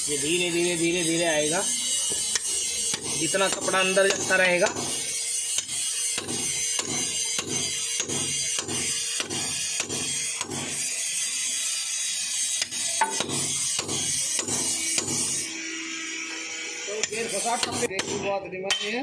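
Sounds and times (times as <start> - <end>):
rhythmic hand tool strokes on metal: 0.0 - 19.0
sharp squeak: 0.1 - 11.2.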